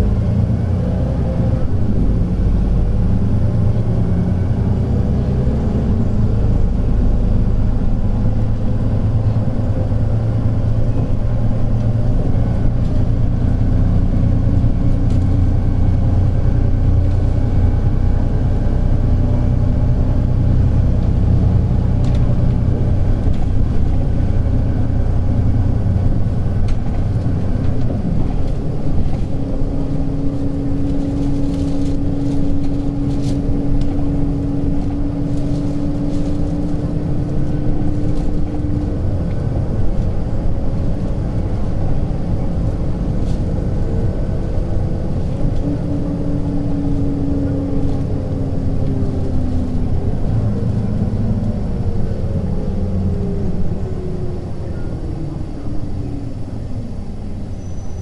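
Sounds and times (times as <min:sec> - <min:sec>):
bus diesel engine running: 0:00.0 - 0:58.0.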